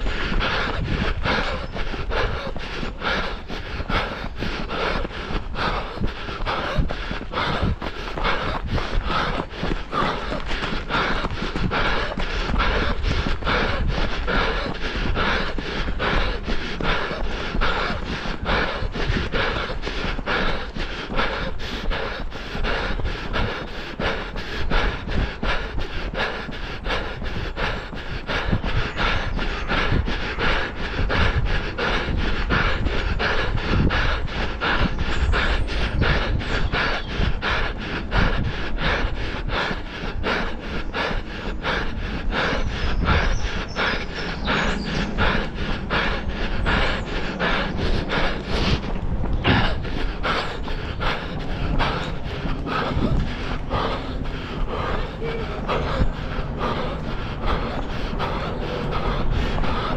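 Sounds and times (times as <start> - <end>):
heavy panting breath: 0.0 - 59.9
running footfalls: 0.0 - 59.9.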